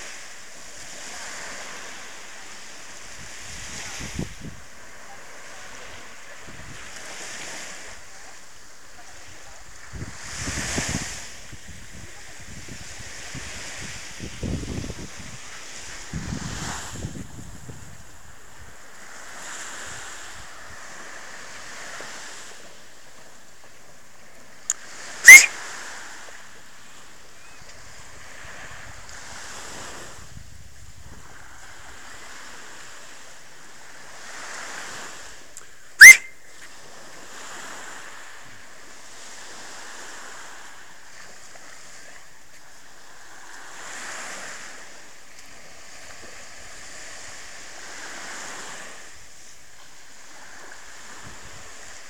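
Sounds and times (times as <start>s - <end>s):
small waves lapping on shore: 0.0s - 52.0s
sharp rising whistles: 25.2s - 25.6s, 36.0s - 36.5s.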